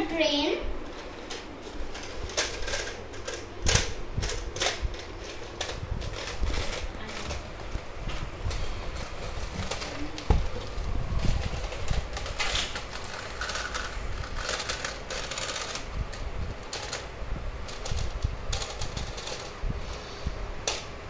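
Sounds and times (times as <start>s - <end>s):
toy train wheels clattering: 10.6s - 19.6s.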